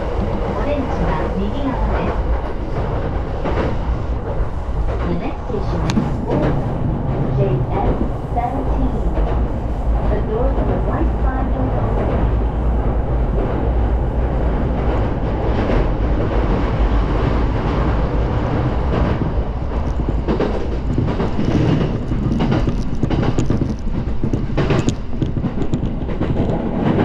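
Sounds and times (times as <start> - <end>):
train rumbling: 0.0 - 27.0
wheels clicking over rail joints: 17.7 - 27.0.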